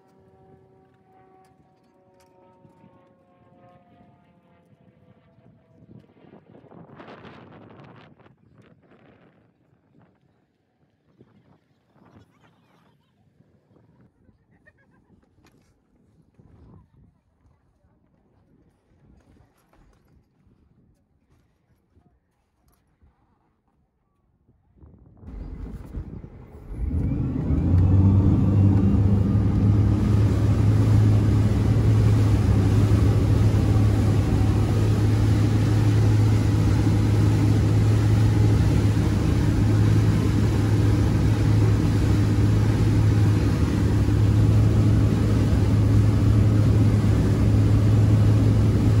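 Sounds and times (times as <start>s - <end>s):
boat engine drone: 0.0s - 5.8s, 25.3s - 49.0s
rush of wind and water: 25.3s - 49.0s.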